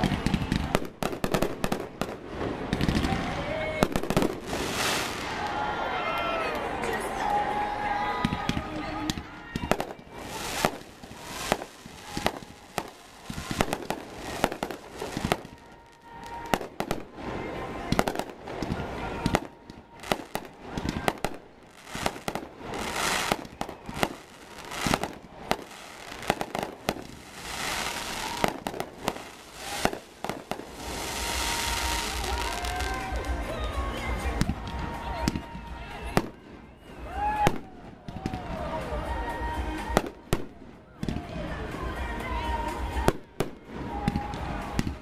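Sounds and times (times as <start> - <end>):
fireworks bangs: 0.0 - 6.0, 6.7 - 41.4
fireworks hiss: 3.9 - 5.4, 9.8 - 17.2, 20.0 - 33.3.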